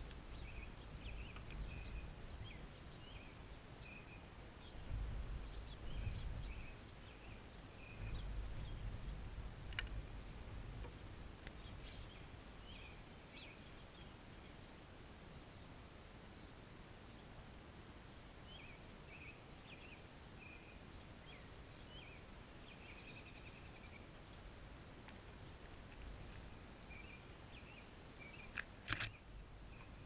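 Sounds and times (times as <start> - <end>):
small songbirds chirping: 0.0 - 30.0
low uneven rumble: 4.6 - 13.0
sharp click: 28.5 - 29.2.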